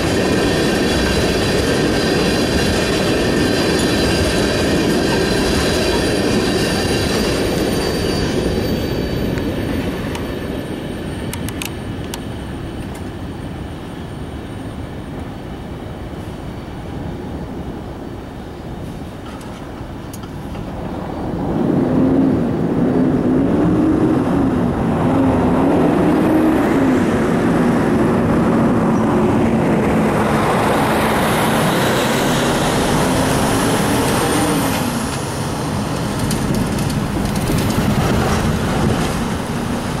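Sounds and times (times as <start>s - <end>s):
tyres on road: 0.0s - 40.0s
car and truck engines: 23.6s - 40.0s.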